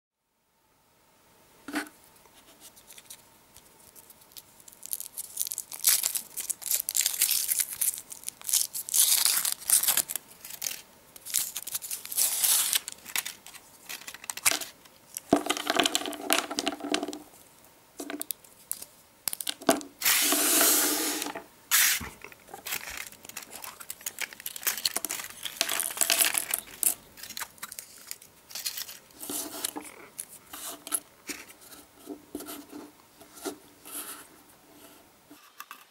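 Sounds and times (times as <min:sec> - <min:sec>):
plastic capsule being handled: 0:02.9 - 0:17.3, 0:18.0 - 0:32.6
foil wrapper crinkling and tearing: 0:03.8 - 0:16.7, 0:21.3 - 0:30.5.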